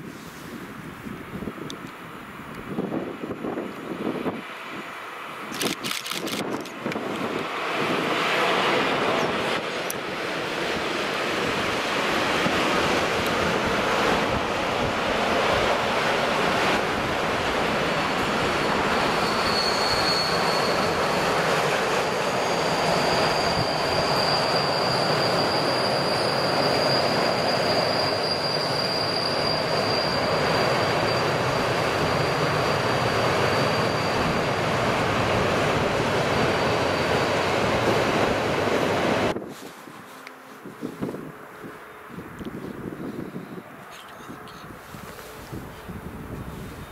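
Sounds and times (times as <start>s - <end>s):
train wheels rumbling on rails: 1.4s - 43.2s
high wheel flange squeal: 18.8s - 34.8s.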